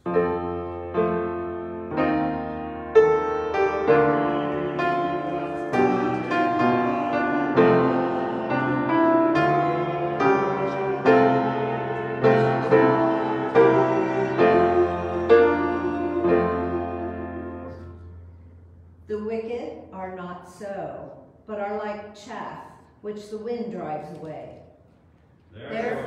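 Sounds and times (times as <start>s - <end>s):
slow piano chords: 0.0s - 19.2s.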